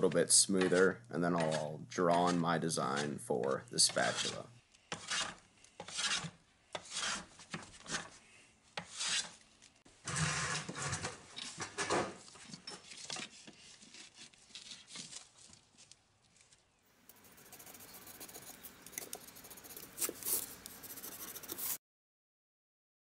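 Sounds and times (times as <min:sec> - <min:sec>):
faint scratches: 0:03.8 - 0:08.2, 0:17.1 - 0:21.8
hand plane shaving wood: 0:03.9 - 0:04.4, 0:05.0 - 0:08.1, 0:08.8 - 0:09.4, 0:17.3 - 0:21.8.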